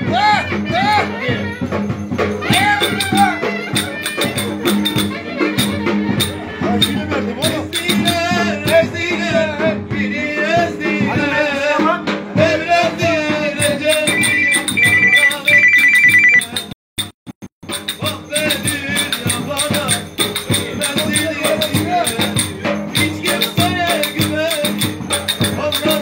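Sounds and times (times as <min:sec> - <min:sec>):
folk dance music: 0:13.8 - 0:16.4
beeping ringtone tone: 0:14.0 - 0:16.5.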